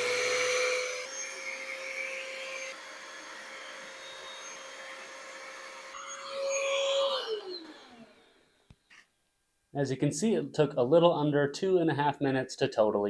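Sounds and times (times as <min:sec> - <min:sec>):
air pump motor hum: 0:00.0 - 0:08.5.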